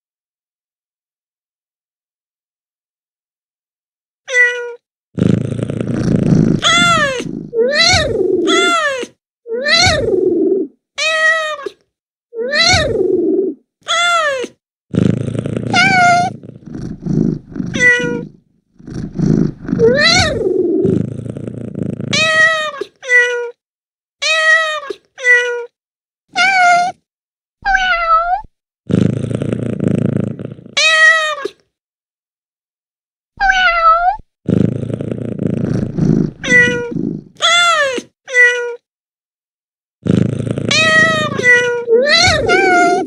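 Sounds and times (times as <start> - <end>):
cat meowing: 4.3 - 4.8, 6.6 - 10.2, 11.0 - 11.8, 12.4 - 13.1, 13.9 - 14.6, 15.7 - 16.4, 17.6 - 18.4, 19.6 - 20.7, 22.1 - 23.6, 24.2 - 25.7, 26.3 - 27.0, 27.6 - 28.5, 30.8 - 31.6, 33.4 - 34.2, 36.4 - 38.8, 40.7 - 43.0
cat purring: 5.2 - 8.8, 9.8 - 10.7, 12.7 - 13.6, 14.9 - 22.6, 28.9 - 30.8, 34.5 - 37.4, 40.0 - 43.0.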